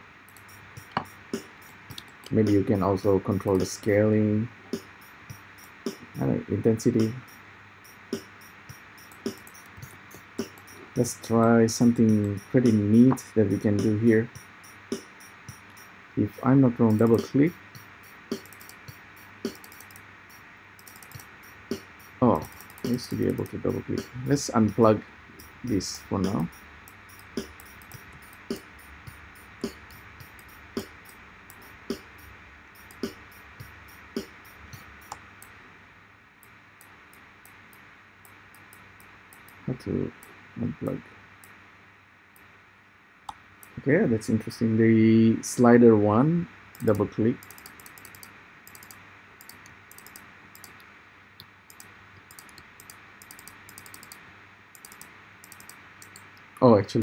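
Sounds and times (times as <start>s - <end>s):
high electronic ticks: 0.0s - 35.6s, 36.4s - 40.4s, 46.7s - 56.6s
low room hum: 0.0s - 57.0s
computer mouse clicking: 0.3s - 2.7s, 8.1s - 35.6s, 36.8s - 39.6s, 46.7s - 54.2s, 54.8s - 56.5s.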